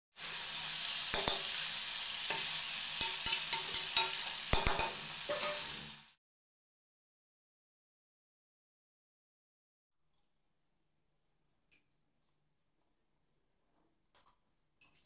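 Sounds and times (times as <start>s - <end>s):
chicken sizzling in oil: 0.1s - 6.2s
metal spoon scraping pan: 2.3s - 5.8s.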